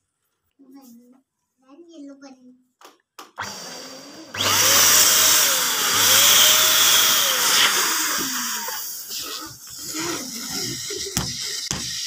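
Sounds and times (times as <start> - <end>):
electric balloon pump running: 3.4 - 12.0.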